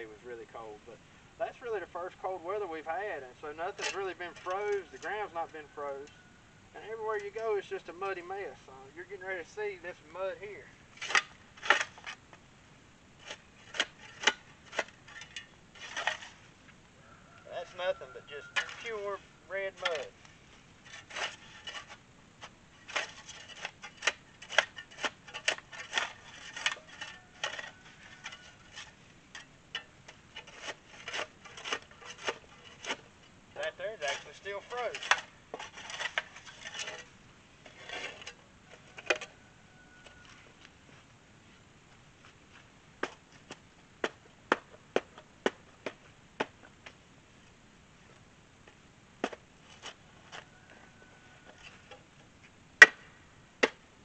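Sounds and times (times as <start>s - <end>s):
shovel scraping into wet clay: 3.5s - 6.2s, 11.0s - 12.2s, 13.2s - 16.4s, 18.0s - 39.4s.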